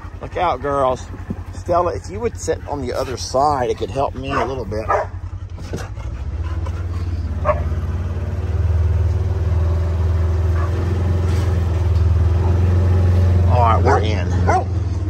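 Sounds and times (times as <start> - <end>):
utility vehicle engine running: 0.0 - 15.0
dog barking: 3.9 - 5.3, 7.3 - 7.8, 10.5 - 10.8, 13.6 - 14.8.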